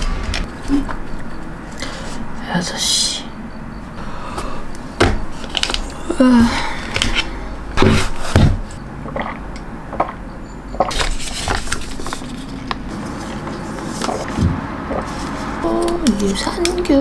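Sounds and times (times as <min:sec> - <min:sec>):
heavy thumps: 0:00.0 - 0:00.5.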